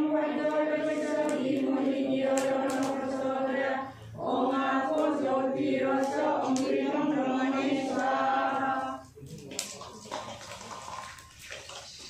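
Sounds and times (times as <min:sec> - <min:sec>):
women chanting a hymn: 0:00.0 - 0:09.1.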